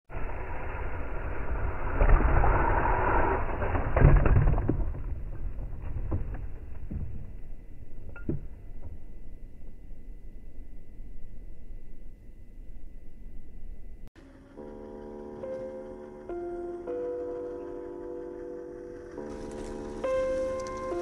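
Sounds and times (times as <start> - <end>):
toy car drivetrain running: 14.2 - 21.0
tyres crunching on gravel: 19.2 - 21.0.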